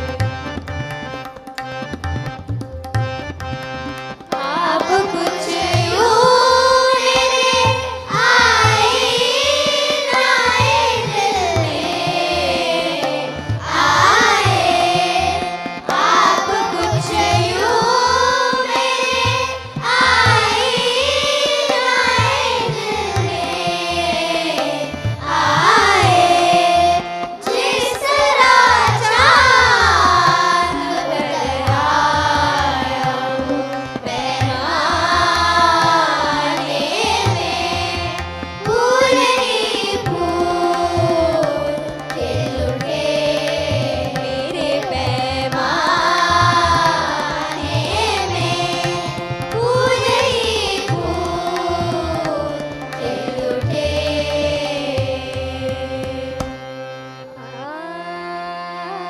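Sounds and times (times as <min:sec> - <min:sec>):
tabla strokes: 0:00.0 - 0:57.0
woman singing classical vocal: 0:04.4 - 0:08.8, 0:38.7 - 0:56.6, 0:57.6 - 0:59.0.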